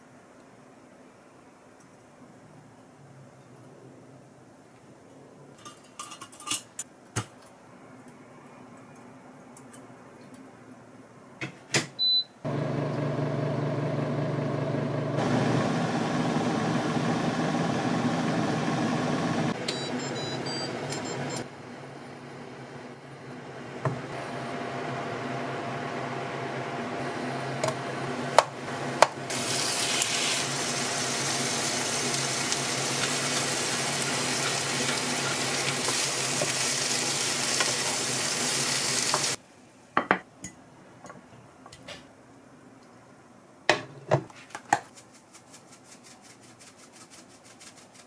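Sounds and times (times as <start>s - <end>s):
shrimp sizzling in frying pan: 29.3s - 39.4s.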